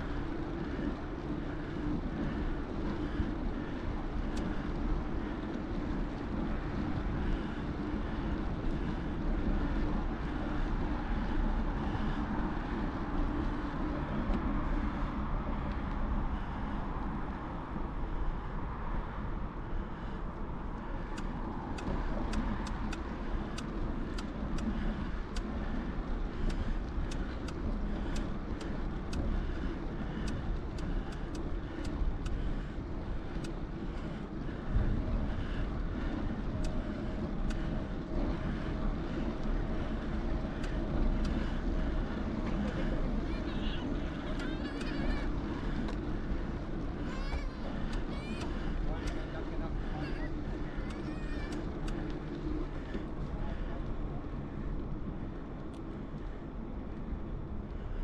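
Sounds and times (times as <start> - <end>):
bicycle rolling: 0.0 - 58.0
wind rumble: 0.0 - 58.0
light ticks: 4.2 - 6.4, 15.6 - 16.0, 20.7 - 34.7, 35.4 - 54.0, 54.7 - 57.8.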